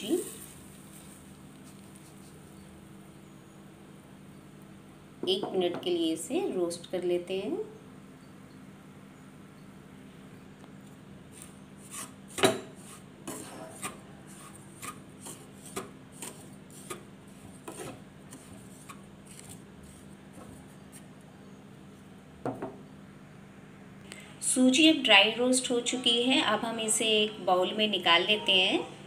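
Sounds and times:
spatula scraping semolina in pan: 11.4s - 21.0s.

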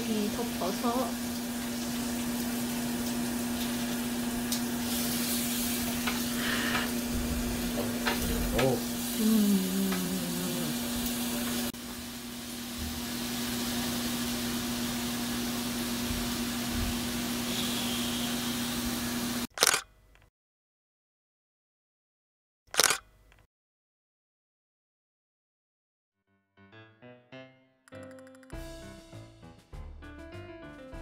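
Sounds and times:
pork sizzling on grill: 0.0s - 19.5s.

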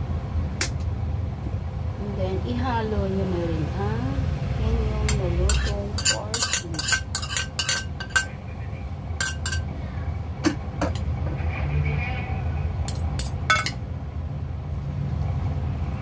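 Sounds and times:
steady low hum: 0.0s - 16.0s
cutlery clinking against glass bowl: 5.1s - 8.4s, 9.2s - 9.7s, 10.5s - 11.1s, 12.9s - 13.8s.

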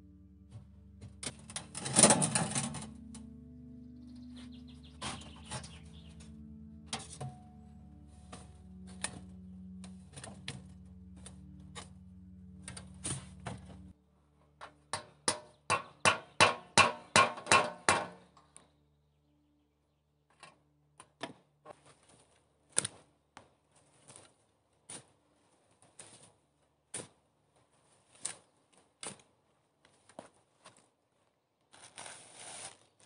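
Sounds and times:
low steady hum: 0.0s - 15.7s
hatchet knocking on metal pipe: 14.9s - 18.2s.

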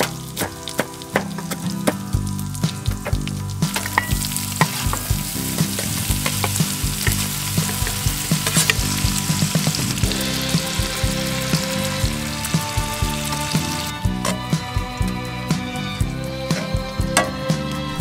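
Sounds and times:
food sizzling in a skillet: 0.0s - 14.0s
utensil scraping a pan: 3.1s - 14.6s.

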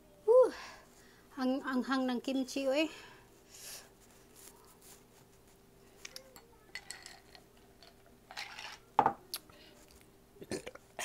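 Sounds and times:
ice cubes clinking in glass: 6.8s - 8.8s.

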